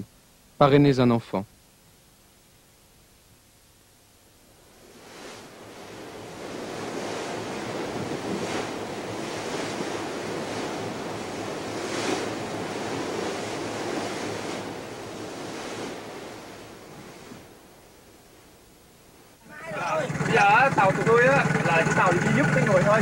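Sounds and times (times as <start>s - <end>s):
wind: 0.0s - 23.0s
waves sloshing and breaking: 4.6s - 18.6s, 19.4s - 23.0s
loud water splashes: 19.7s - 23.0s.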